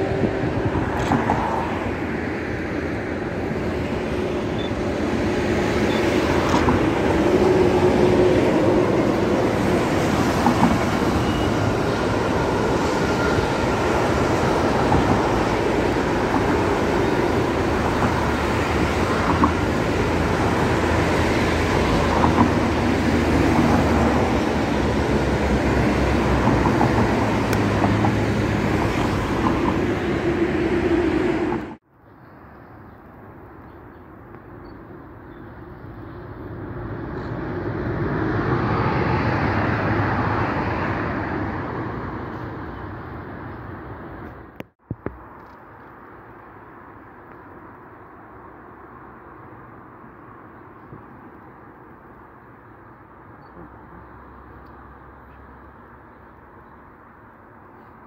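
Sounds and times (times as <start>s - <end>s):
freight train rolling past: 0.0s - 31.8s
motorway traffic: 0.0s - 58.0s.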